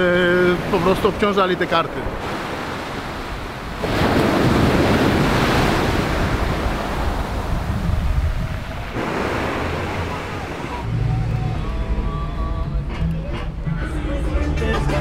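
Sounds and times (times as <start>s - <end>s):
sea surf breaking on beach: 0.0s - 10.9s
wind rumbling on microphone: 2.1s - 10.9s.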